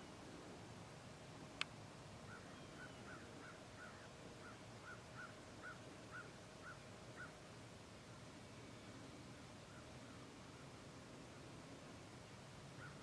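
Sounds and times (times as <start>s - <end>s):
bird calling faintly: 2.2s - 7.4s, 8.1s - 10.8s, 12.7s - 13.0s.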